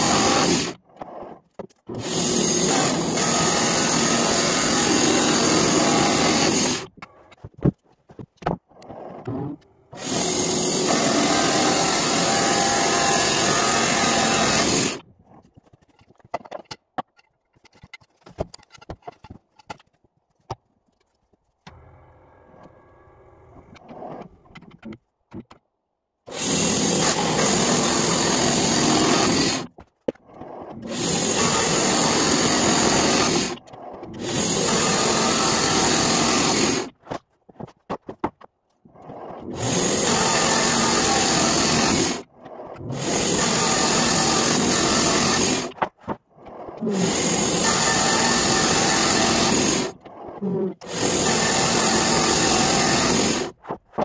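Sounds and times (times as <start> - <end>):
band saw cutting through log: 0.0 - 0.8, 1.9 - 6.9, 9.9 - 15.0, 26.3 - 29.7, 30.7 - 37.0, 39.1 - 45.8, 46.7 - 53.6.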